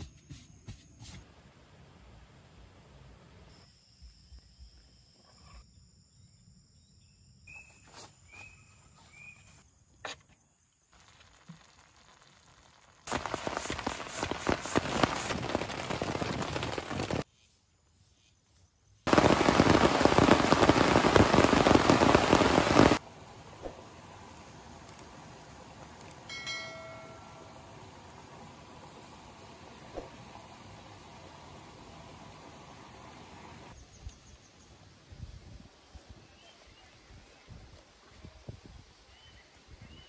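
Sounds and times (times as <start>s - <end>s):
heavy rain patter: 11.0s - 17.2s, 19.1s - 23.1s.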